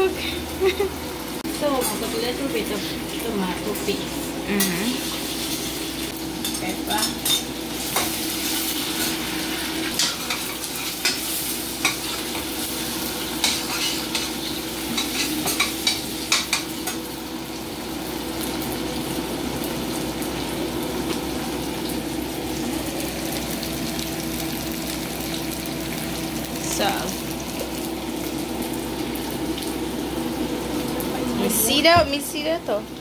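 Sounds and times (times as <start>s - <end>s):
sauce sizzling in saucepan: 0.0s - 33.0s.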